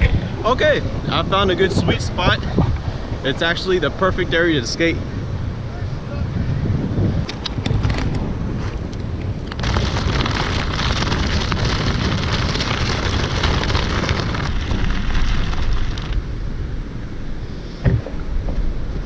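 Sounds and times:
wind rumbling on microphone: 0:00.0 - 0:19.0
skate tyres rolling on sand: 0:06.9 - 0:16.6.

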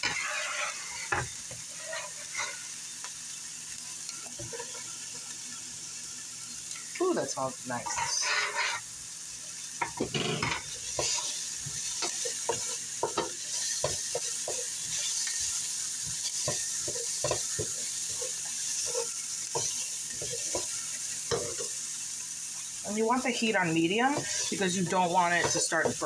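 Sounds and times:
onions sizzling in oil: 0:00.0 - 0:26.0
wooden spoon knocking on pan: 0:09.8 - 0:11.2, 0:12.0 - 0:14.7, 0:16.1 - 0:17.8, 0:25.2 - 0:26.0.

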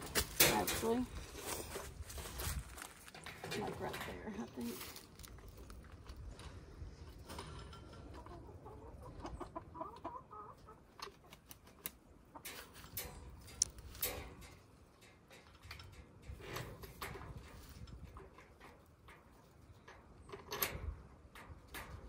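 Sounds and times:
wire mesh cage rattling: 0:00.0 - 0:05.0, 0:12.4 - 0:22.0
hens clucking: 0:06.0 - 0:13.4.

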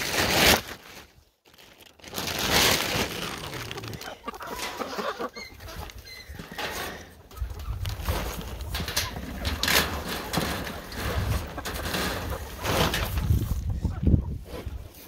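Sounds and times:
loud rustling bursts: 0:02.0 - 0:04.0
chickens clucking: 0:02.3 - 0:15.0.

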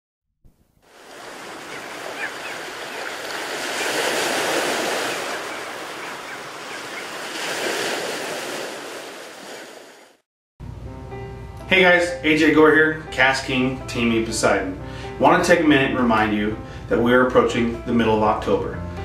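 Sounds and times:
surf rushing: 0:00.8 - 0:10.2.

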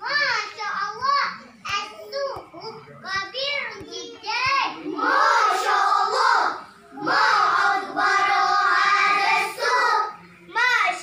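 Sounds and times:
children chanting in unison: 0:04.9 - 0:10.2.

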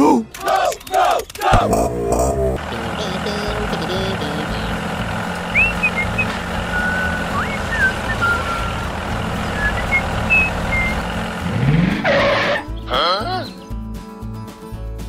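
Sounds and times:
diesel tractor engine running: 0:01.5 - 0:13.0
rising whistled swoops: 0:05.5 - 0:08.8, 0:09.4 - 0:11.0.

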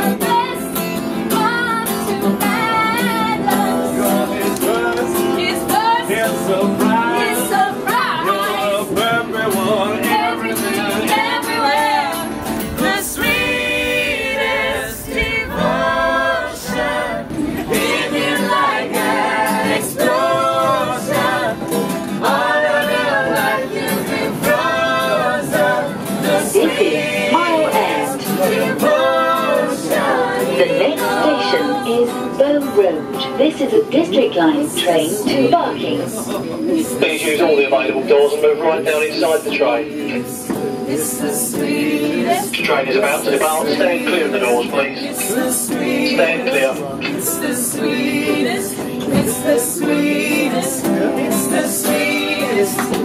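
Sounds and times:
acoustic guitar strumming: 0:00.0 - 0:53.0
group singing: 0:00.0 - 0:53.0.

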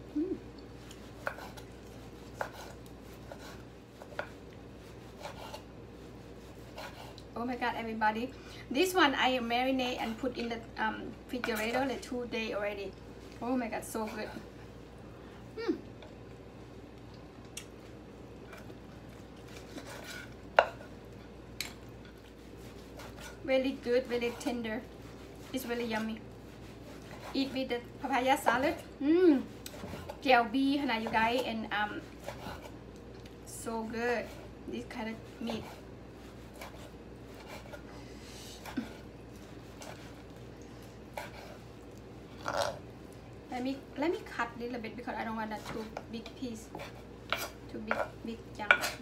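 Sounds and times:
low steady hum: 0:00.0 - 0:49.0
knife slicing meat: 0:01.0 - 0:05.7, 0:06.3 - 0:07.2, 0:22.3 - 0:27.7, 0:31.0 - 0:32.8, 0:35.2 - 0:38.0, 0:38.6 - 0:41.7.

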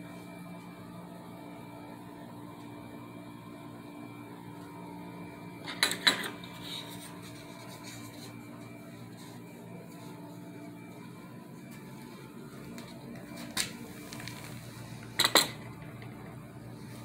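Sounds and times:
background hum: 0:00.0 - 0:17.0
soft rubbing sound: 0:06.5 - 0:15.0.

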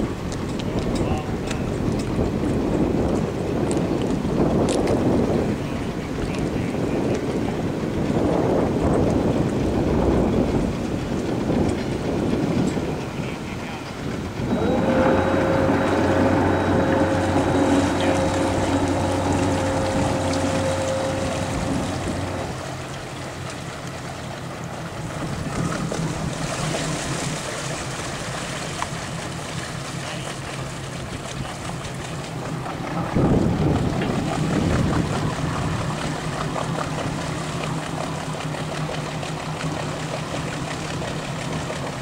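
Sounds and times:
boat engine humming: 0:00.0 - 0:42.0
water noise: 0:00.0 - 0:42.0
rushing sound: 0:14.4 - 0:22.9.

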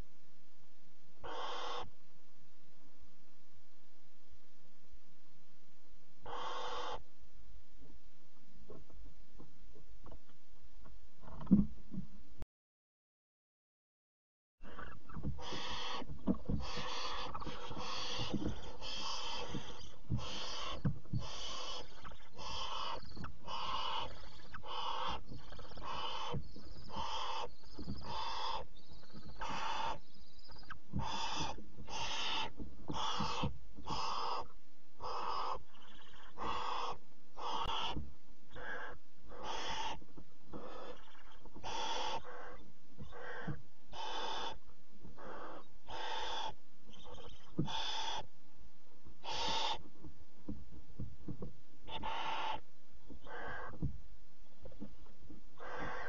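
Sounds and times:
owl chicks rasping hisses: 0:01.2 - 0:01.9, 0:06.3 - 0:07.0, 0:14.6 - 0:28.7, 0:29.4 - 0:30.0, 0:31.0 - 0:40.0, 0:40.6 - 0:44.6, 0:45.2 - 0:48.3, 0:49.2 - 0:49.8, 0:51.9 - 0:52.6, 0:53.3 - 0:53.7, 0:55.6 - 0:56.0.

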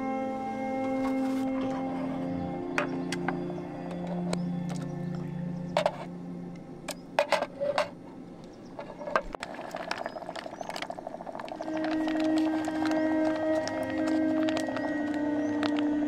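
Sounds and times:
soft background music: 0:00.0 - 0:07.9, 0:11.6 - 0:16.0.

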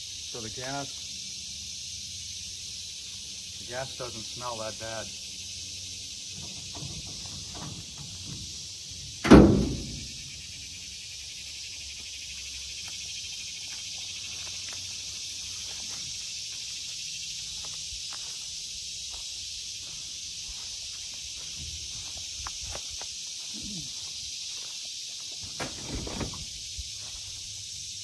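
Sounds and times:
insects chorus: 0:00.0 - 0:28.0
loud short thump: 0:09.2 - 0:10.2, 0:25.4 - 0:26.5.

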